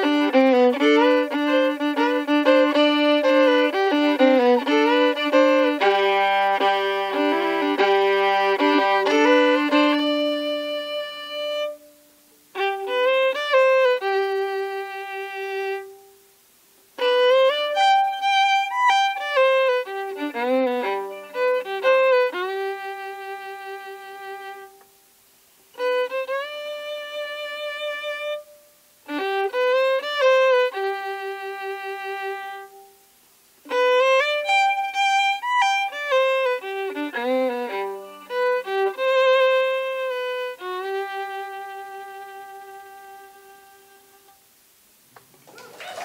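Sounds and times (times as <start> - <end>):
solo fiddle playing slow tune: 0.0 - 45.0.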